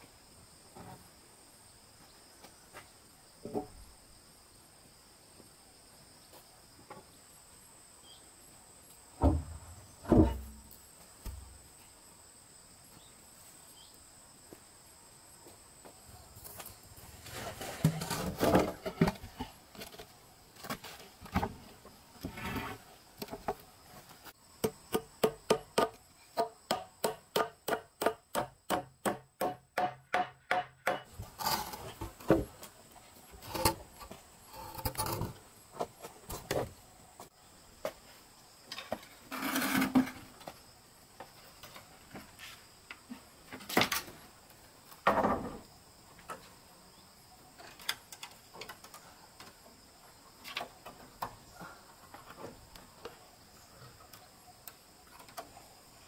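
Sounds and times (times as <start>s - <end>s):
sharp knocks on wood: 24.6s - 31.1s.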